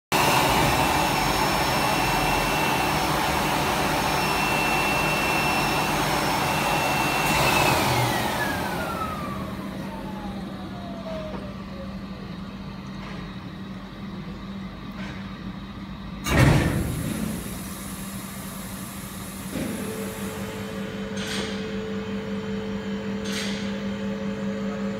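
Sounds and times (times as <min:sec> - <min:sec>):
cleaning machine rushing and whining: 0:00.1 - 0:11.4.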